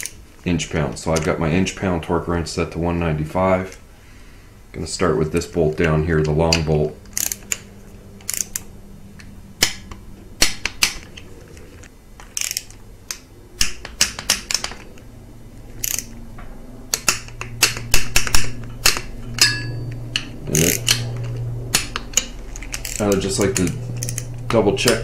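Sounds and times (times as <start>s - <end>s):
torque wrench clicks: 6.5s - 8.7s, 12.2s - 14.9s, 15.8s - 16.2s, 16.9s - 25.0s
socket ratchet clicking: 7.1s - 11.3s, 12.2s - 15.1s, 15.7s - 16.2s, 16.9s - 25.0s.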